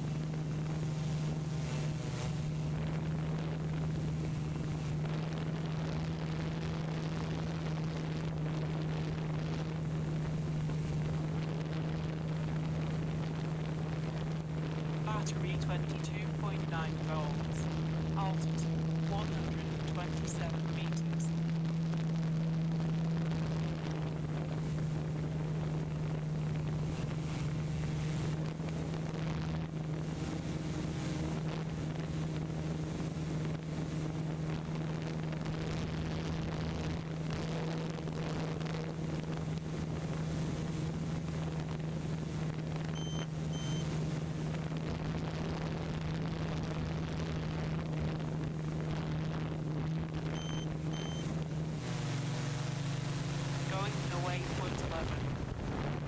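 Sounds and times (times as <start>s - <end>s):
steady low hum: 0.0s - 56.0s
high electronic beeps: 50.4s - 51.3s.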